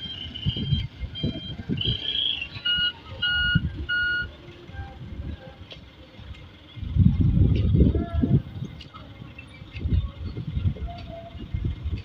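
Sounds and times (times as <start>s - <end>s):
truck reversing alarm beeping: 0.0s - 5.6s
irregular low rumble: 0.0s - 12.0s.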